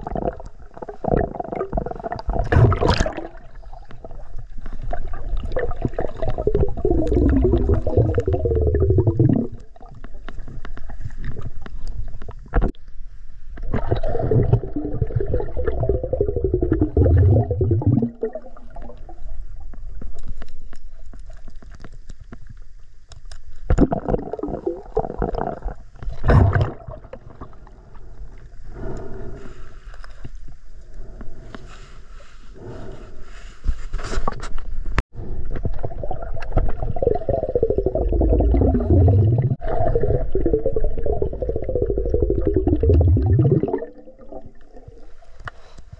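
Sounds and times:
underwater rushing and gurgling: 0:00.0 - 0:11.9, 0:13.6 - 0:19.8, 0:35.3 - 0:45.8.

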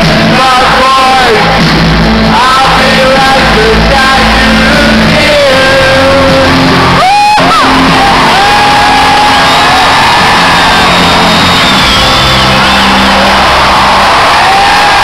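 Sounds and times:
person singing: 0:00.0 - 0:01.6, 0:02.3 - 0:07.7
held bass notes: 0:00.0 - 0:15.0
live rock band: 0:00.0 - 0:15.0.

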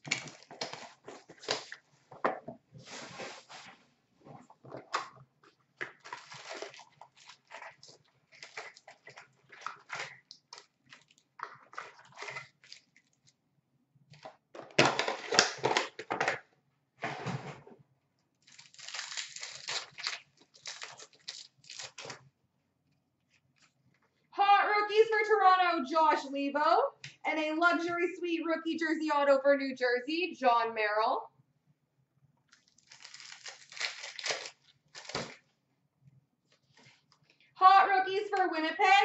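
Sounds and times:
wrappers tearing and crinkling: 0:00.0 - 0:01.8, 0:05.8 - 0:11.2, 0:11.8 - 0:13.3, 0:18.4 - 0:22.2, 0:32.5 - 0:35.4.

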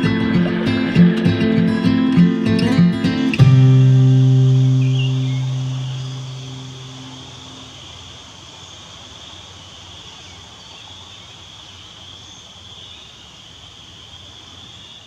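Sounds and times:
acoustic guitar note: 0:00.0 - 0:07.7
insects calling: 0:00.0 - 0:15.0
soft outdoor hiss: 0:00.0 - 0:15.0.

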